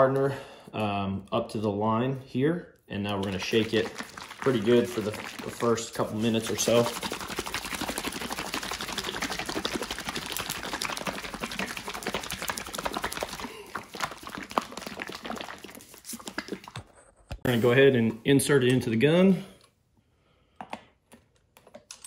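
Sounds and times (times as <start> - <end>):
liquid sloshing in shaken bottle: 3.0 - 17.1.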